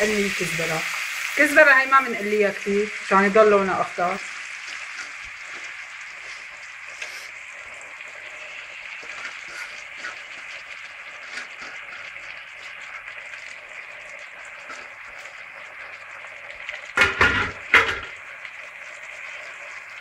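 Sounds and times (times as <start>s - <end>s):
food sizzling in hot oil: 0.0s - 20.0s
pot handling noises: 4.6s - 7.3s, 9.0s - 10.5s, 11.2s - 12.4s, 16.9s - 18.2s.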